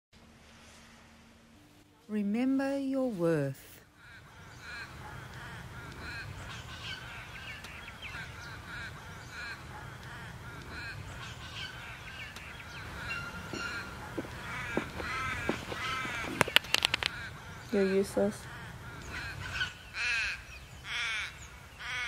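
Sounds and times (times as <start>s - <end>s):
birds calling: 3.9s - 22.0s
sharp taps: 13.5s - 17.2s.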